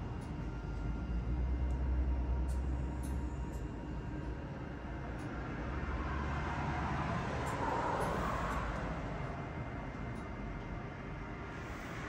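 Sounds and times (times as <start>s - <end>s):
steady low hum: 0.0s - 12.0s
road vehicle passing by: 5.3s - 10.0s.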